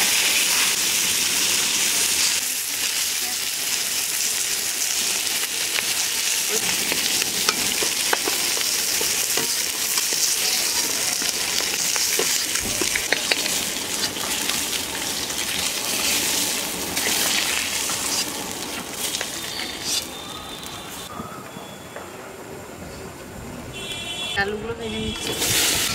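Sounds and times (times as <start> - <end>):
fish sizzling in oil: 0.0 - 21.1
metal spatula scraping and clicking: 6.9 - 14.5.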